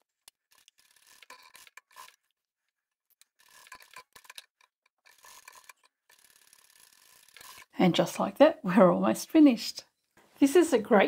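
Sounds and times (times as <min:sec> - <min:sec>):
sewing machine stitching: 0:00.3 - 0:02.2, 0:03.2 - 0:07.8.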